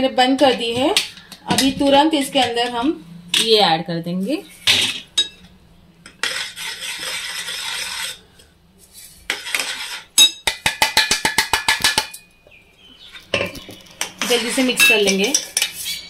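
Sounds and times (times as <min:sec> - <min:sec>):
metal bowl tapping pan rim: 0:10.2 - 0:12.3.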